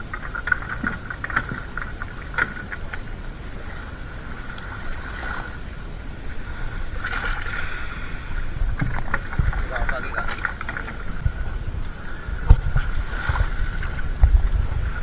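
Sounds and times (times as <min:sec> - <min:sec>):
low rumble: 0:00.0 - 0:15.0.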